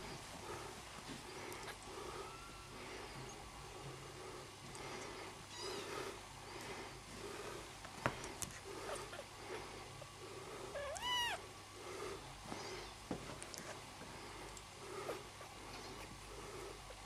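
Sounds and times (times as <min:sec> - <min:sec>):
kitten meowing: 0:10.8 - 0:11.4.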